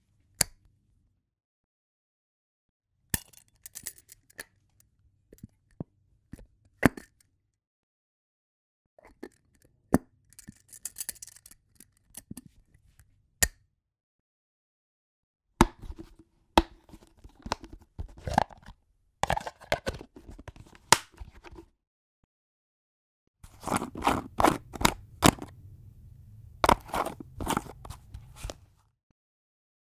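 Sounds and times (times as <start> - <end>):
jar lids clicking and knocking: 15.6 - 21.6, 23.5 - 25.6, 26.6 - 28.6
lid scraping twist: 15.6 - 21.6, 23.4 - 25.6, 26.6 - 28.6.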